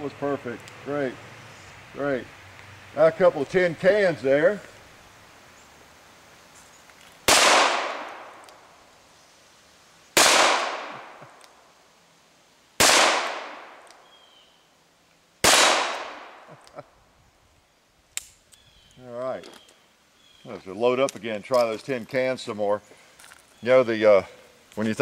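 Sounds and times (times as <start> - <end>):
revolver shots echoing: 7.3 - 8.4, 10.2 - 11.2, 12.8 - 13.8.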